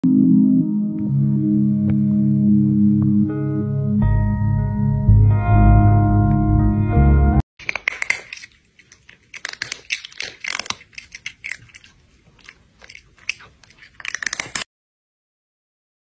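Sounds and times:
crunching dry crackers: 7.6 - 14.7.

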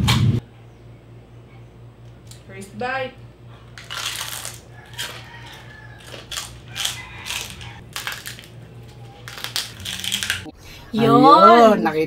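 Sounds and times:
people crunching crispy skin: 3.7 - 10.5.

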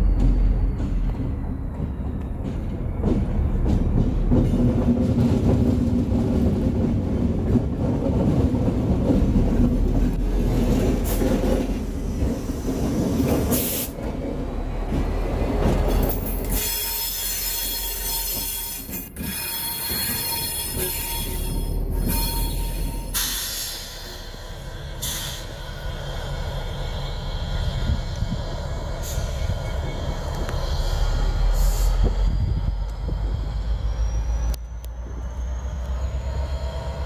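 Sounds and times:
diesel locomotive engine running: 0.0 - 37.0
high-pitched squeal: 15.9 - 37.0.

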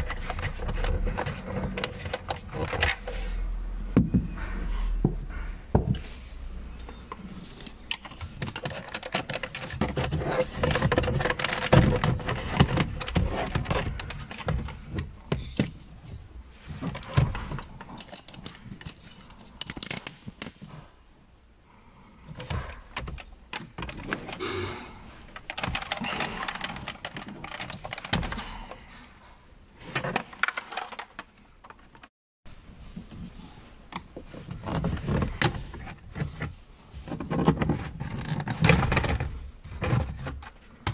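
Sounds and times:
plastic trim clattering and rattling: 8.0 - 14.8.

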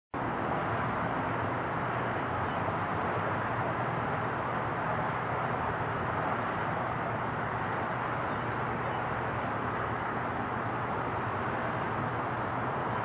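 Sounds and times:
distant jet engines roaring: 0.2 - 13.0.

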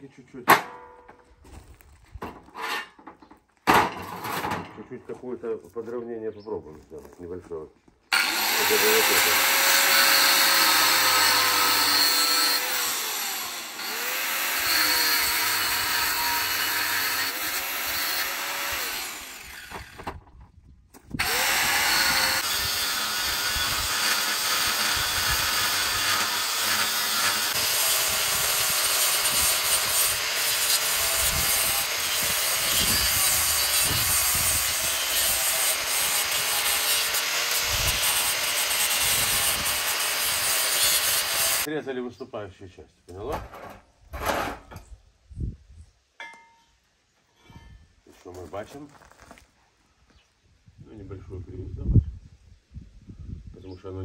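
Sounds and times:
angle grinder grinding steel: 8.1 - 20.0, 21.2 - 41.7.

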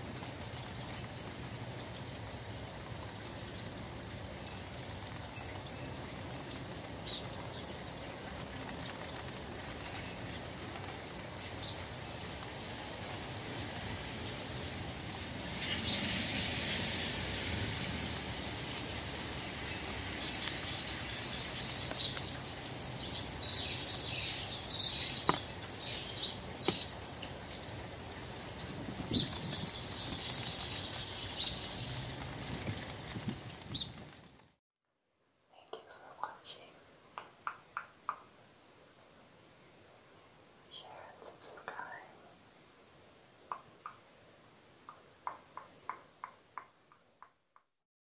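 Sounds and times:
rain on umbrella: 0.0 - 34.6, 43.5 - 47.8
sharp taps: 25.2 - 25.5, 37.2 - 38.3, 44.8 - 47.7.

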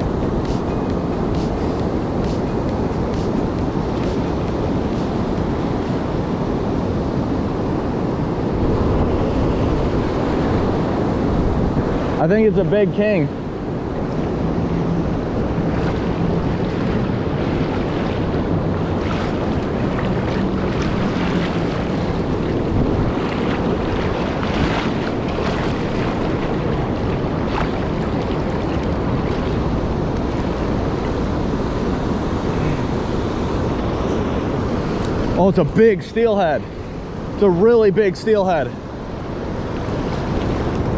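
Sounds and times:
turbulent river water rushing: 0.0 - 40.9
wind buffeting microphone: 0.0 - 40.9.

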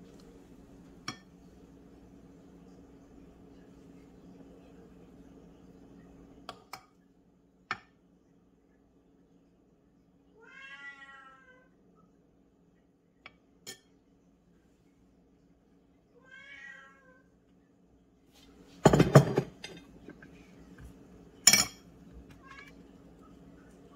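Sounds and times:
cat meowing: 10.4 - 11.7, 16.2 - 17.2.

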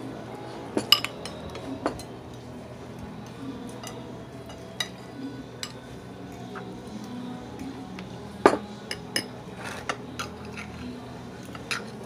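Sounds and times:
cutlery clinking against glass: 0.8 - 2.2, 3.7 - 6.7, 8.4 - 12.0.

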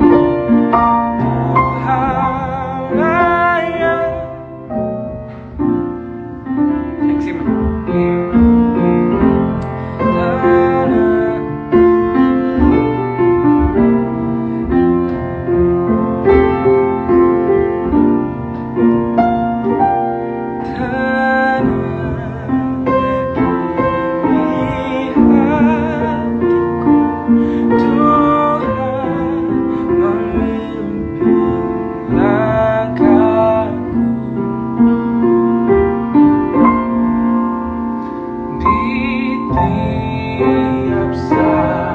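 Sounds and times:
piano accompaniment: 0.0 - 41.9
man singing gospel song: 1.2 - 4.3, 9.9 - 11.8, 20.6 - 23.4, 24.2 - 26.5, 27.5 - 34.1, 38.6 - 41.9.

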